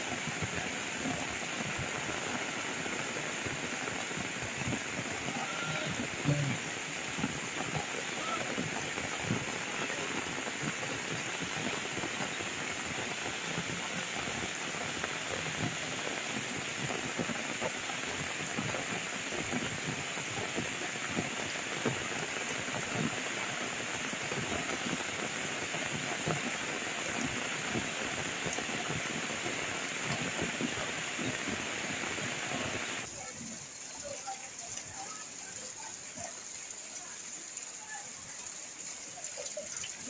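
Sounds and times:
rain falling on water: 0.0s - 40.0s.

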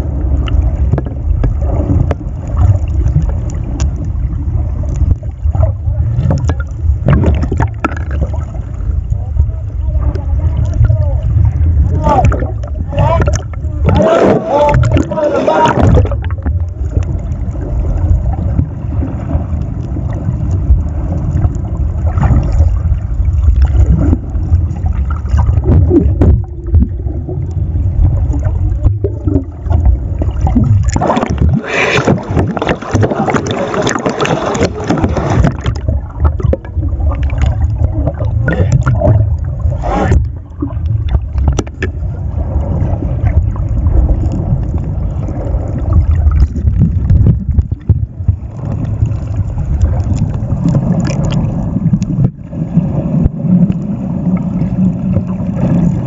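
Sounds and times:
muffled underwater rumble and sloshing: 0.0s - 56.0s
water splashes: 0.0s - 56.0s.

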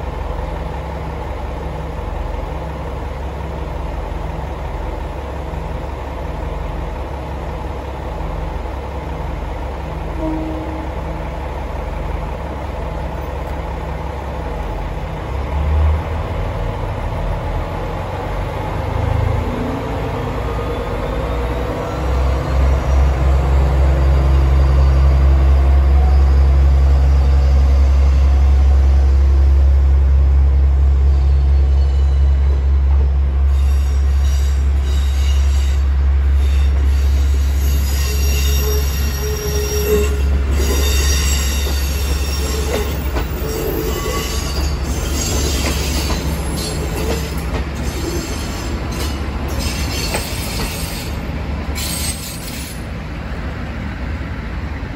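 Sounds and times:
diesel railcar engine rumbling: 0.0s - 54.9s
train wheels squealing: 20.5s - 29.5s, 31.0s - 32.8s, 33.4s - 52.9s.

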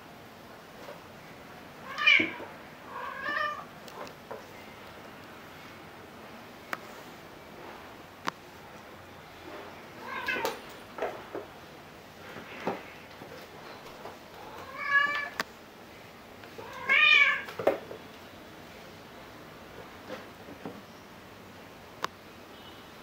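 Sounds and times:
cat meowing: 1.8s - 3.7s, 10.0s - 10.6s, 14.4s - 15.4s, 16.6s - 17.5s.

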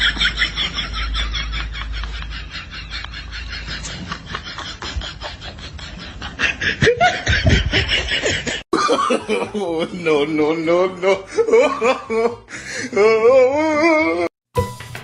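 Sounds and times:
person snickering: 0.0s - 9.5s.

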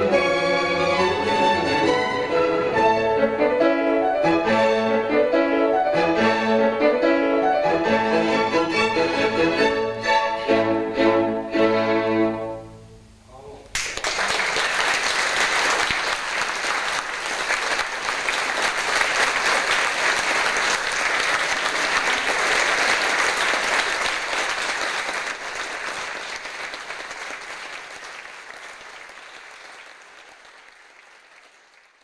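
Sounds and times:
audience applauding: 13.7s - 32.0s.

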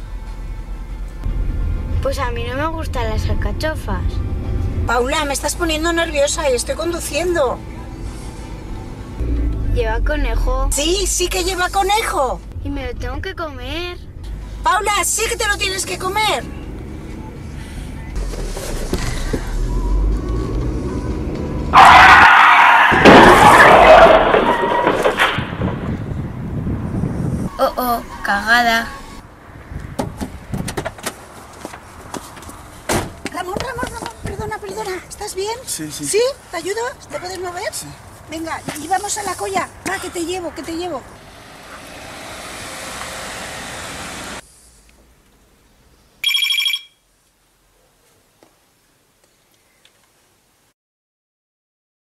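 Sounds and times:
car driving past: 6.7s - 12.6s, 14.0s - 27.0s, 39.6s - 44.4s
car tyres skidding: 17.6s - 26.0s, 41.2s - 44.4s
loud crash of impact: 22.8s - 26.3s
desk telephone ringing: 46.2s - 47.0s.

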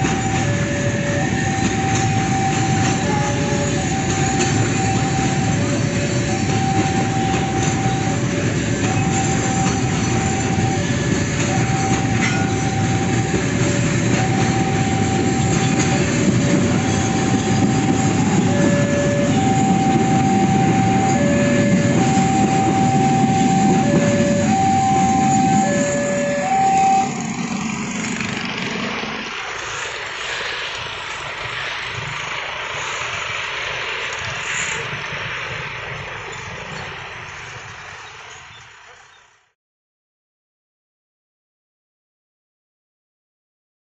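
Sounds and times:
two-tone crossing alarm chime: 0.0s - 27.4s
freight train rumbling past: 0.0s - 39.5s
motorcycles and truck passing: 0.1s - 39.0s.

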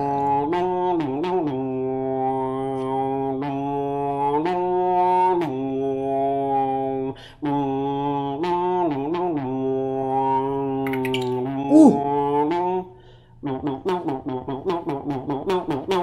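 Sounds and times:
low vocal drone: 0.0s - 10.8s, 11.6s - 12.8s.

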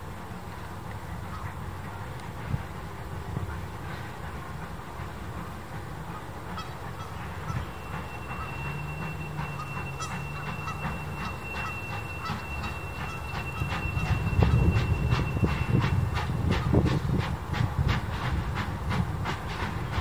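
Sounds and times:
steam locomotive chuffing: 0.1s - 20.0s
high-pitched squeal: 7.2s - 16.6s.

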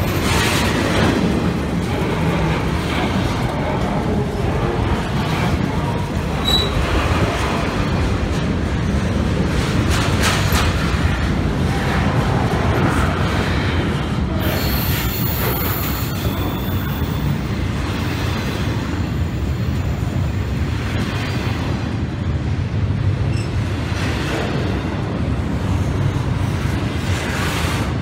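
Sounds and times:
freight train wheels rumbling: 0.0s - 28.0s
high wheel squeal: 6.4s - 6.9s, 14.4s - 17.4s.

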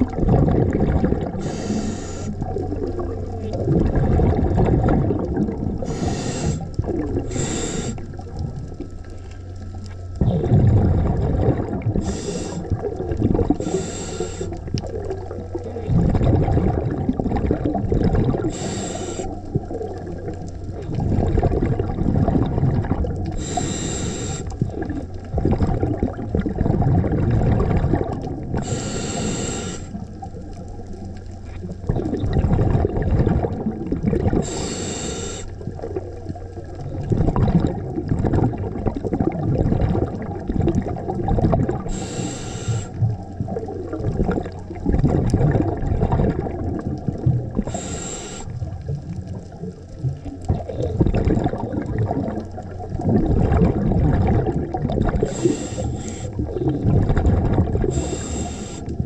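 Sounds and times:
exhaled bubbles gurgling: 0.0s - 59.0s
hissing regulator inhalations: 1.3s - 2.5s, 5.8s - 8.2s, 12.0s - 12.9s, 13.5s - 14.7s, 18.5s - 19.5s, 23.3s - 24.6s, 28.6s - 30.2s, 34.4s - 35.6s, 41.9s - 43.0s, 47.6s - 48.6s, 55.2s - 56.6s, 57.8s - 59.0s.

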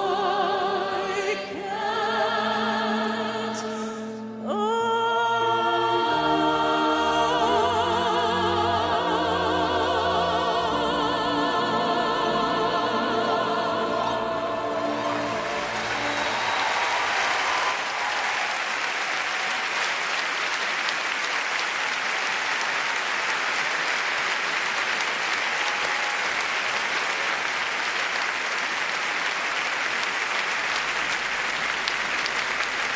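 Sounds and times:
singer choir and orchestra: 0.0s - 19.8s
audience applauding: 13.8s - 32.9s.

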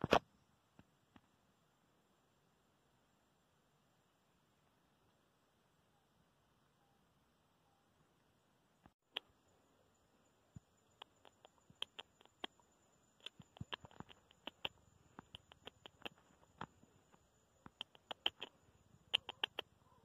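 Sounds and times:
animal gnawing and cracking seeds: 11.0s - 12.6s, 13.2s - 19.7s.

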